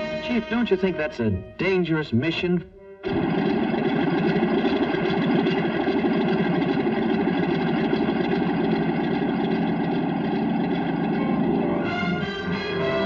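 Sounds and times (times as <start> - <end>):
propeller airplane engine drone: 3.0 - 13.0.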